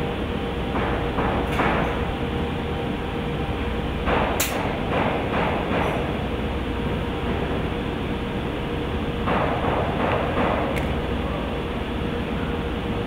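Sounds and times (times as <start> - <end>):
sharp click: 4.4 - 4.7.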